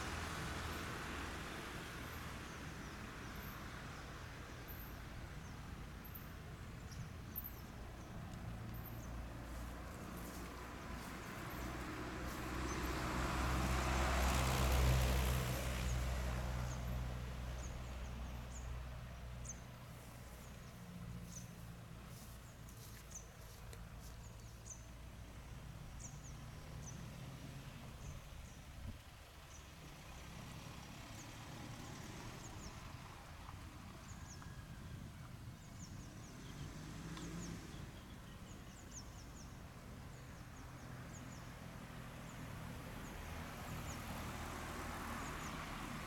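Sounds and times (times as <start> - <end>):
vehicle passing by: 0.0 - 6.2, 6.8 - 28.6, 29.3 - 46.0
small birds chirping: 19.4 - 27.1.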